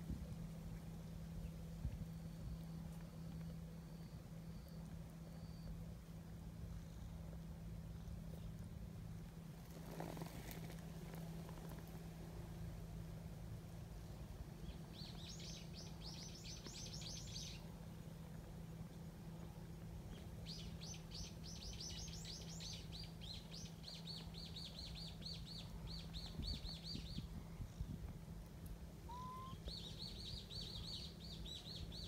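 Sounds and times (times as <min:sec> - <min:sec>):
songbird trilling: 0:14.6 - 0:17.7, 0:29.1 - 0:32.0.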